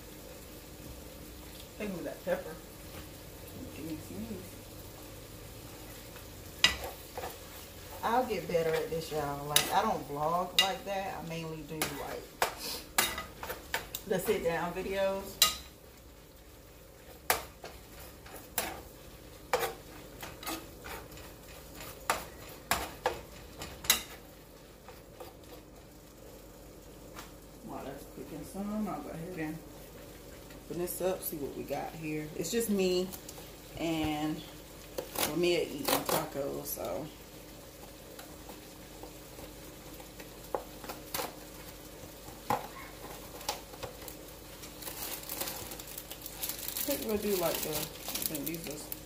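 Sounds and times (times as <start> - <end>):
plastic packaging crinkling: 42.6 - 49.0.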